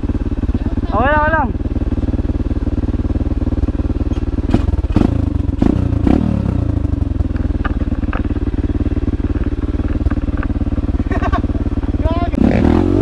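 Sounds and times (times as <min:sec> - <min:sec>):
dirt bike engine: 0:00.0 - 0:13.0
knocks and clatter of bike: 0:03.5 - 0:06.2, 0:06.8 - 0:12.3.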